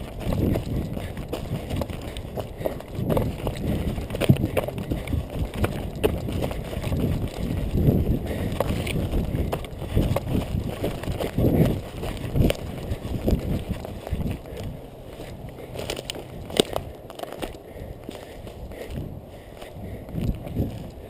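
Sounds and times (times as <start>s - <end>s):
brush rustling: 0.0s - 21.0s
twigs snapping: 8.6s - 18.3s.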